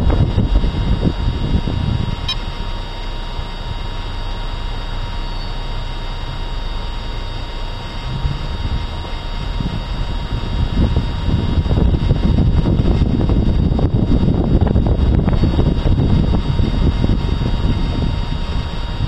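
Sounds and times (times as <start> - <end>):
road and engine rumble: 0.0 - 19.0
wind buffeting microphone: 0.0 - 19.0.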